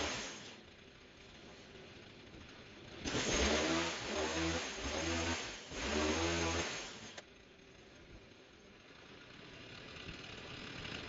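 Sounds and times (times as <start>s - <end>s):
small engine revving: 0.0s - 0.6s, 3.0s - 7.3s.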